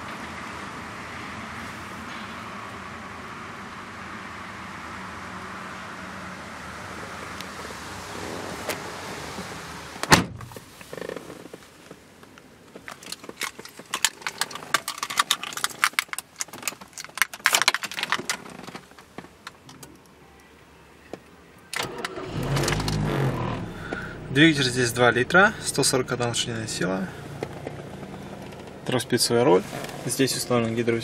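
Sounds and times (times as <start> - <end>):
car door shutting: 8.2 - 11.6, 21.8 - 24.3
car keys jingling: 12.8 - 20.0.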